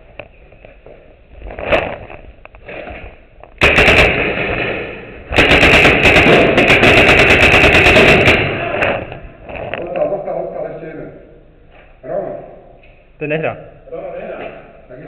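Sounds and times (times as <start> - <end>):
paintball markers firing: 3.6 - 9.2.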